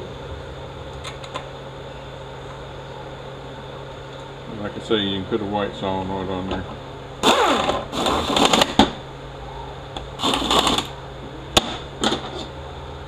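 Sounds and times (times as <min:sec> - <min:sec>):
handheld air tool whining: 0:07.2 - 0:08.8, 0:10.2 - 0:10.9.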